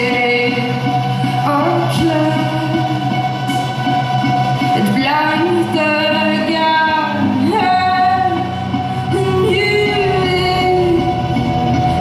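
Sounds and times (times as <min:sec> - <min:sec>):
electric guitar and bass: 0:00.0 - 0:12.0
woman singing long held notes: 0:04.8 - 0:11.4.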